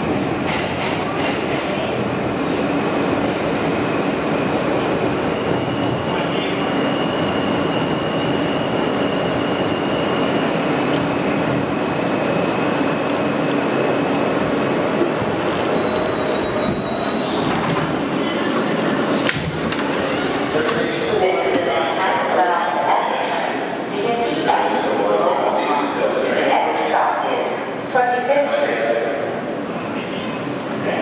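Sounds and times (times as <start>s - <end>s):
steel wheels rumbling on rail: 0.0s - 22.3s
high wheel squeal: 15.3s - 17.4s.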